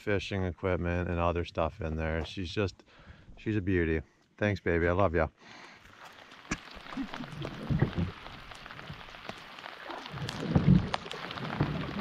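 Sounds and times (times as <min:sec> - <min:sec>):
light rain pattering: 0:05.0 - 0:12.0.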